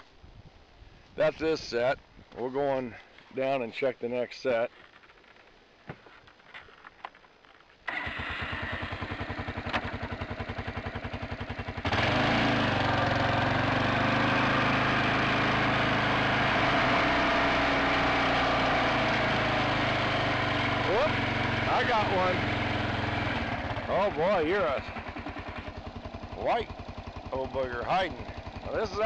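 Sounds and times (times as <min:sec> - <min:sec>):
atv engine idling and revving: 0:07.9 - 0:29.0.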